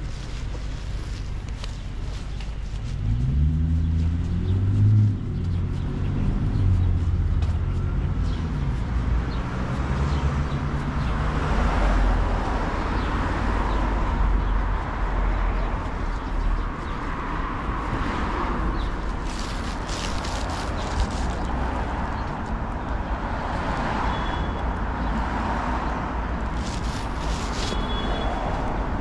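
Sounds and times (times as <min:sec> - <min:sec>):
vehicle engine pulling away: 0:02.1 - 0:22.3, 0:26.4 - 0:29.0
passing tyres hissing: 0:26.4 - 0:29.0.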